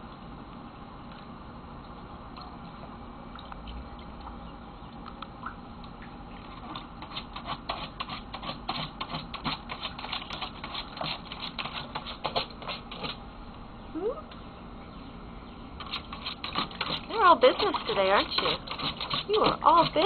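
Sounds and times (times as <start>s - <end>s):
dog paws splashing in water: 15.8s - 20.0s.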